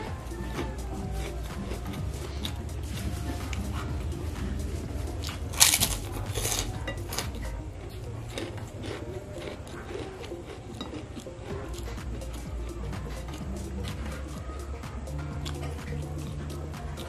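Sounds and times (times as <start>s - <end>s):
chewing crunchy cracker: 0.4s - 17.0s
fingers clicking on plate: 4.6s - 17.0s.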